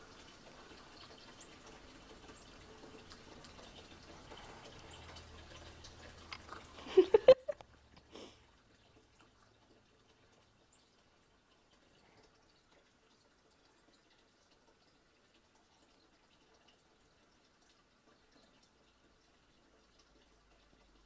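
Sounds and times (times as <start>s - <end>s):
background hiss: 0.0s - 16.3s.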